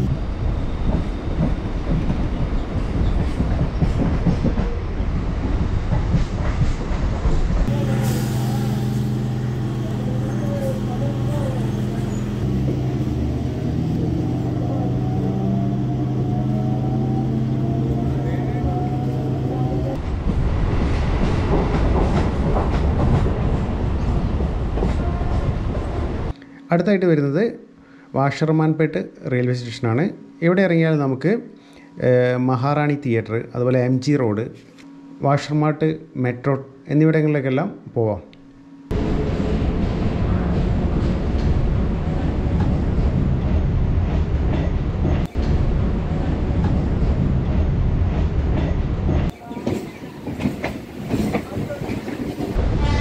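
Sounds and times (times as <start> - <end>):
train wheels rumbling on rails: 0.0 - 26.3, 38.9 - 53.0
train clattering: 0.7 - 14.4, 39.1 - 53.0.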